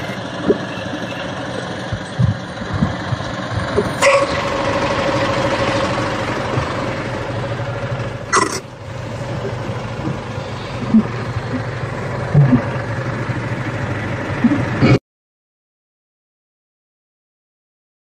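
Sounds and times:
truck diesel engine idling: 0:00.0 - 0:15.0.

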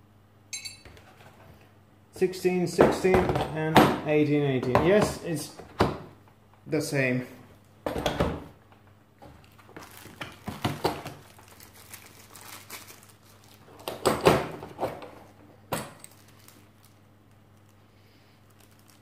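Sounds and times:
plastic bag crinkling: 0:09.4 - 0:14.1, 0:16.0 - 0:19.0.

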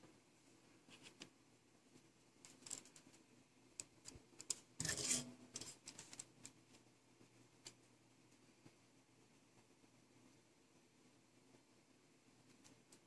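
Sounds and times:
small parts and tools clicking: 0:02.4 - 0:03.2, 0:03.8 - 0:06.6
scraping rustle: 0:04.8 - 0:06.3.

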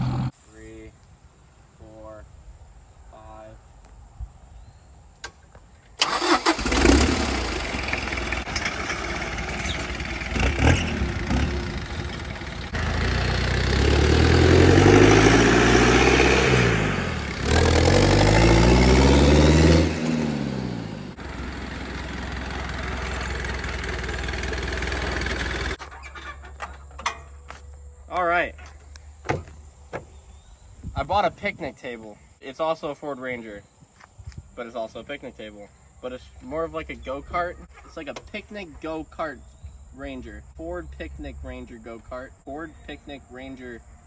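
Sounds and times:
diesel engine starting and running: 0:00.0 - 0:00.3, 0:06.0 - 0:30.2.

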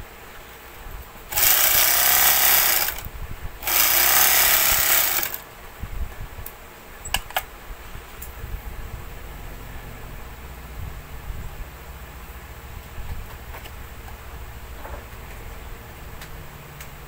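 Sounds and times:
overlock sewing machine running: 0:01.3 - 0:05.4.

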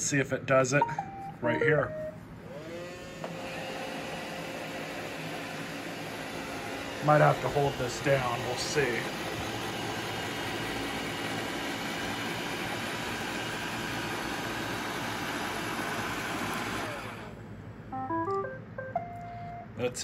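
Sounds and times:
electronic beeps tune: 0:00.8 - 0:02.2, 0:17.9 - 0:19.8
robot vacuum running: 0:02.4 - 0:17.3.

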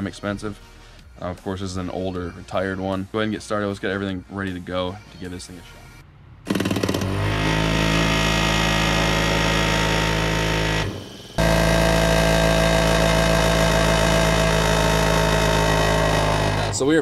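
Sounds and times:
machine low drone: 0:06.5 - 0:17.0
steady higher horn tone: 0:07.3 - 0:16.9.

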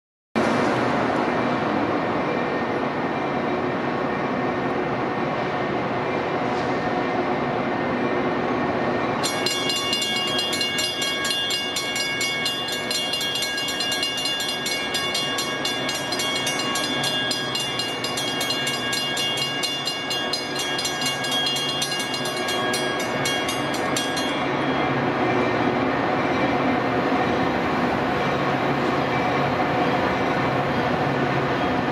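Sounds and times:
diesel locomotive rumble: 0:00.4 - 0:31.9
level crossing bell ringing: 0:09.2 - 0:25.0.

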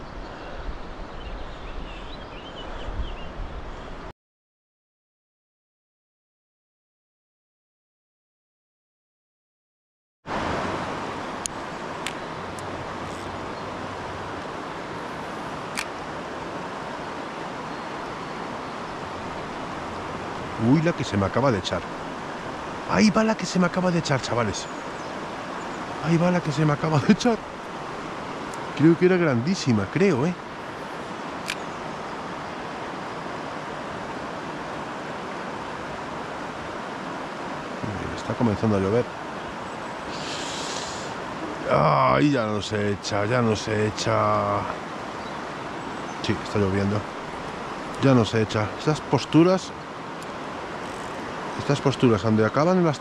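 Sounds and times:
river water rushing: 0:10.3 - 0:53.0
faint click: 0:15.7 - 0:15.9.

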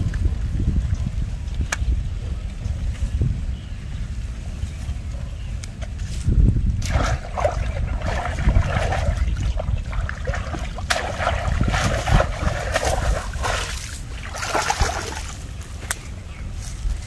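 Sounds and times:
hands splashing in muddy water: 0:06.8 - 0:15.5.

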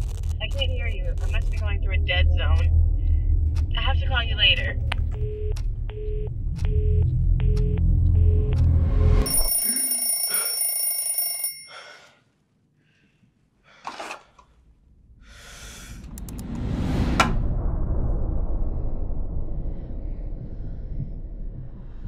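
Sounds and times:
high bell-like ringing: 0:09.2 - 0:12.0.

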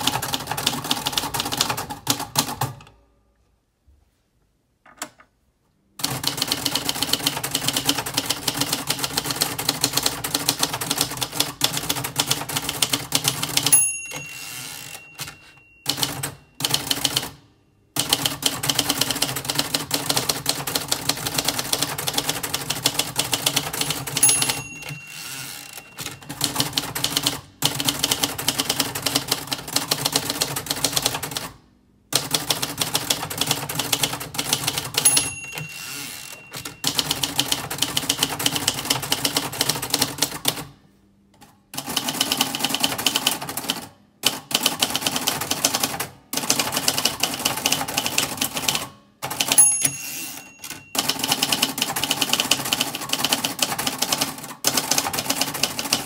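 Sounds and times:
typewriter keys clacking: 0:06.0 - 0:17.3, 0:18.0 - 0:31.5, 0:32.2 - 0:40.7, 0:41.8 - 0:56.0
typewriter bell ding: 0:13.5 - 0:17.3, 0:23.5 - 0:27.4, 0:34.8 - 0:39.0, 0:49.3 - 0:53.2.

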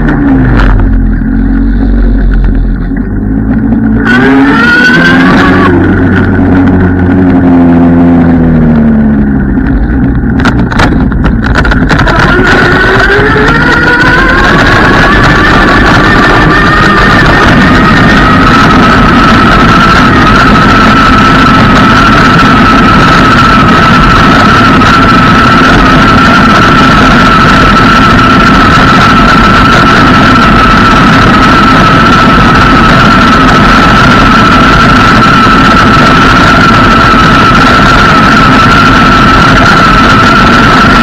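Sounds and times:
constant high whine: 0:00.0 - 0:41.0
scooter tyres rumbling on asphalt: 0:00.0 - 0:41.0
wind: 0:00.0 - 0:41.0.

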